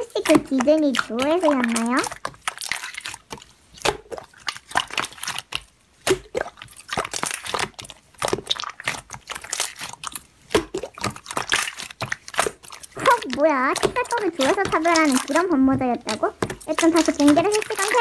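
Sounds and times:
slime stretched by hand: 0:00.0 - 0:18.0
wet clicks and crackling pops: 0:00.0 - 0:18.0.

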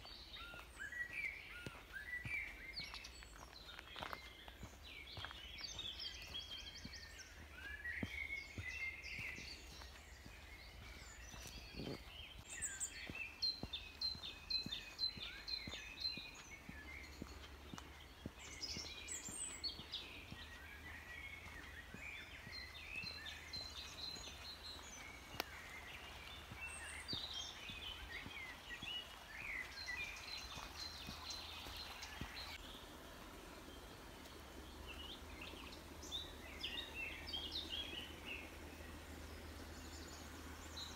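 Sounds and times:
songbirds singing and calling: 0:00.0 - 0:40.9.

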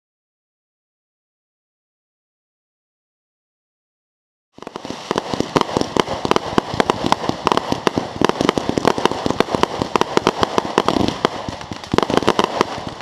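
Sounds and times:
fireworks hiss: 0:04.6 - 0:13.0
fireworks popping rapidly: 0:04.6 - 0:13.0.

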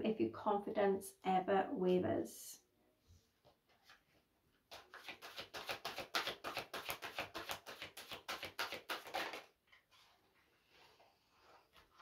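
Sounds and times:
cards being shuffled: 0:04.7 - 0:10.2.

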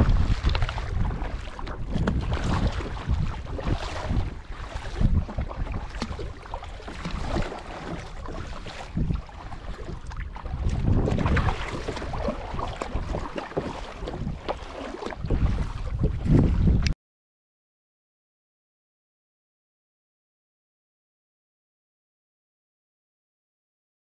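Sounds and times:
wind gusting on microphone: 0:00.0 - 0:13.4, 0:14.0 - 0:14.5, 0:15.1 - 0:17.0.

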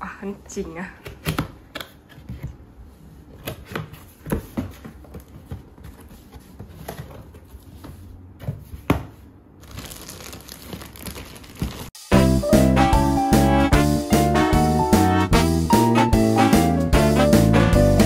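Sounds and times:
cardboard scrapes and knocks: 0:03.4 - 0:09.2
plastic wrapping rustle: 0:09.6 - 0:12.0.

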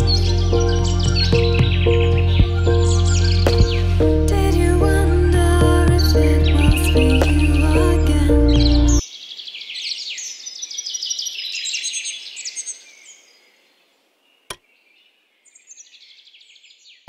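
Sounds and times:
songbirds chirping and trilling: 0:00.0 - 0:04.1, 0:06.0 - 0:17.0.

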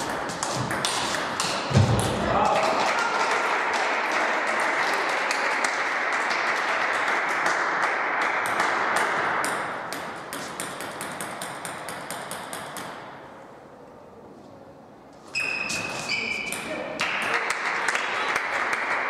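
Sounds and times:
spectators clapping: 0:02.4 - 0:09.3, 0:17.0 - 0:19.0.

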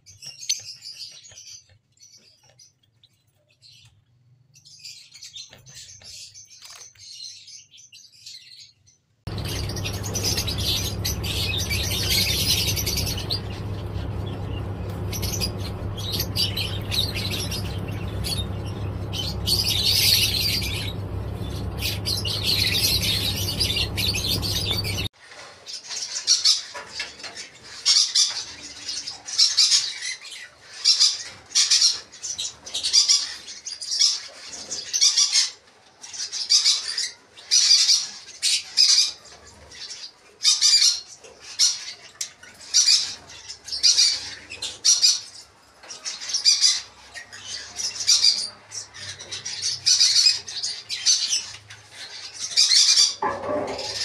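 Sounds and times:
lovebirds calling: 0:04.6 - 0:25.1, 0:42.5 - 0:54.0
steady low hum: 0:09.3 - 0:25.1.

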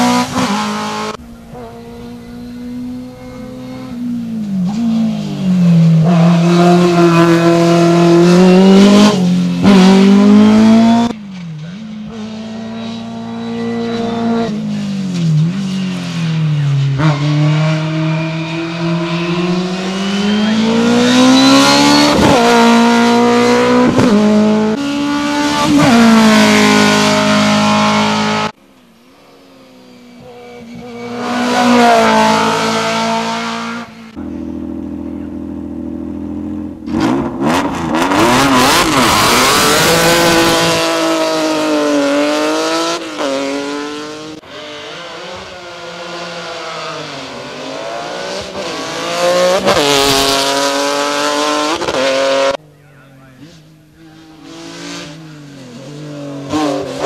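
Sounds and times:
race car engines revving: 0:00.0 - 0:57.0.

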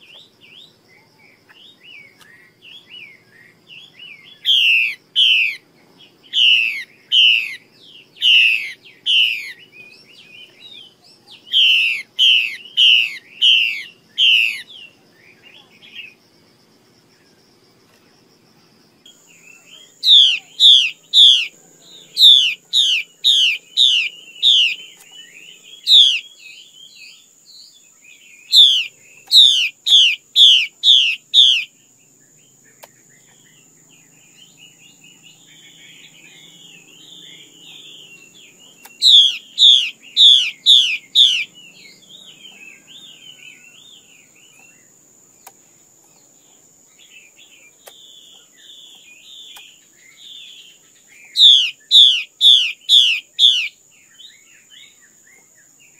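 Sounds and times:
bird chattering warbles: 0:08.2 - 0:09.6, 0:19.6 - 0:26.4, 0:28.5 - 0:31.7, 0:34.9 - 0:43.3, 0:51.3 - 0:53.7
bird whistling sharp notes: 0:22.2 - 0:25.1, 0:25.8 - 0:26.3, 0:38.9 - 0:42.0.

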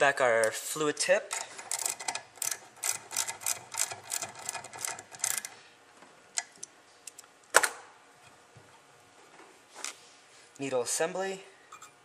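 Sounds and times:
ratchet clicking: 0:01.3 - 0:05.5.

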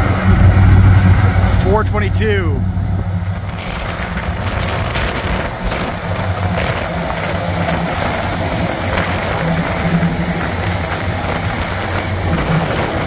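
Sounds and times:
locomotive engine drone: 0:00.0 - 0:13.0.

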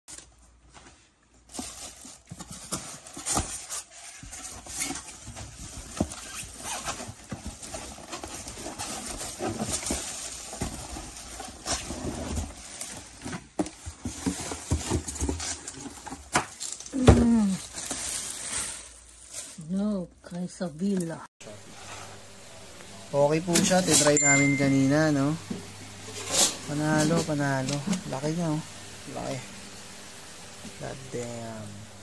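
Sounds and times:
plastic wrap crinkling: 0:01.4 - 0:20.0.

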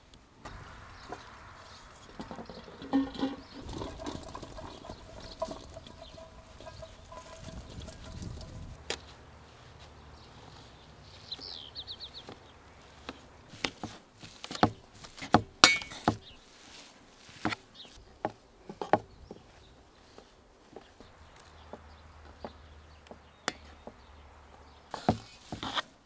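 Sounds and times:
metal utensil clinking in bowl: 0:02.2 - 0:08.6, 0:15.6 - 0:16.1.

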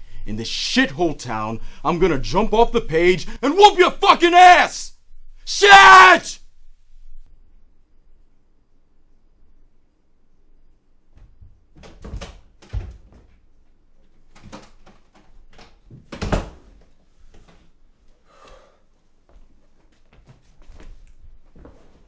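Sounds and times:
irregular knocks and thuds: 0:11.1 - 0:13.4.

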